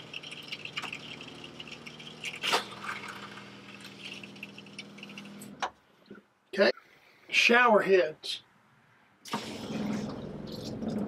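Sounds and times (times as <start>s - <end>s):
faucet running into a sink: 0.0s - 5.4s
water pump humming: 0.0s - 5.6s, 9.3s - 11.0s.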